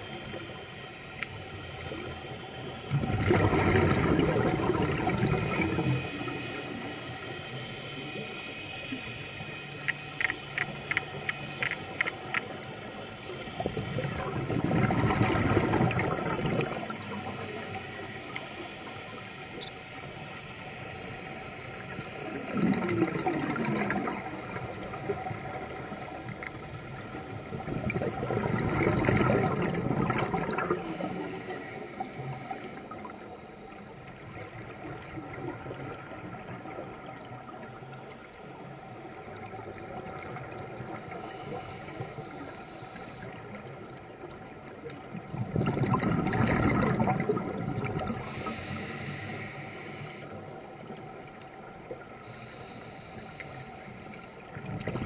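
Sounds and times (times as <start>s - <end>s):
faint steady hiss: 0.0s - 55.0s
diver breath bubbling underwater: 2.9s - 6.9s, 13.6s - 17.2s, 27.5s - 31.3s, 45.3s - 49.2s.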